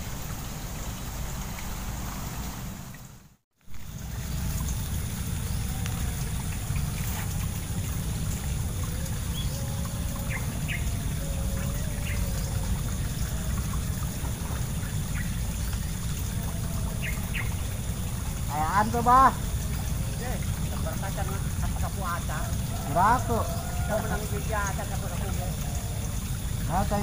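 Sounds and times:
bird chirps: 9.3s - 12.7s.

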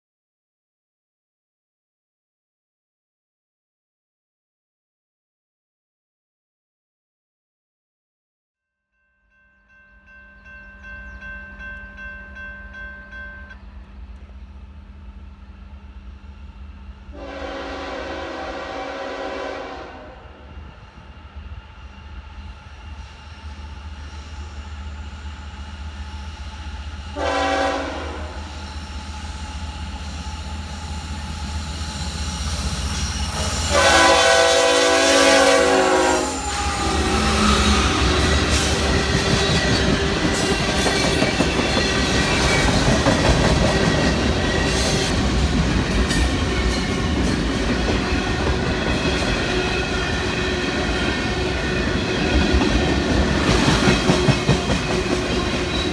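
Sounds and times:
freight train rumble: 9.7s - 55.9s
locomotive horn blasts: 17.1s - 20.3s, 27.2s - 28.5s, 33.4s - 38.1s
train wheels clattering on rails: 36.6s - 55.9s.

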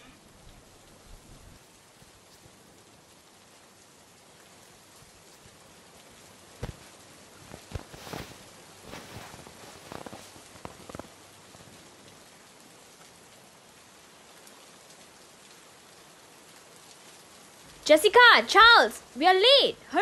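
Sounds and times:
rain hissing: 0.0s - 20.0s.

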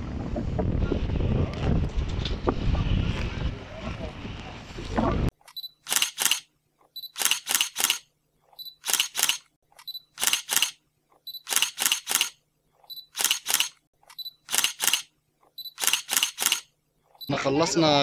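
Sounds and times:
camera shutter clicks: 5.4s - 6.5s, 7.1s - 8.1s, 8.8s - 10.8s, 11.4s - 12.4s, 13.1s - 15.1s, 15.7s - 16.7s.

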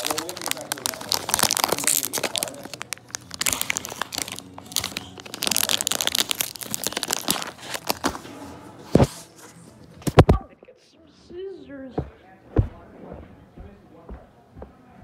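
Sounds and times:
plastic wrapper crinkling and tearing: 0.0s - 8.2s.

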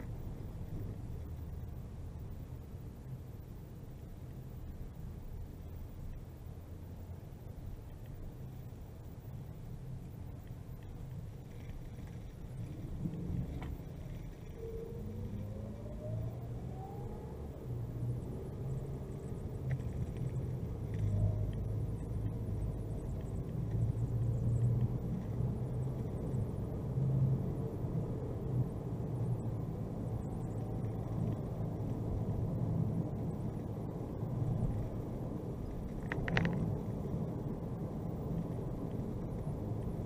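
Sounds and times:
car engine and road rumble: 0.0s - 40.0s
faint whine: 0.0s - 40.0s.

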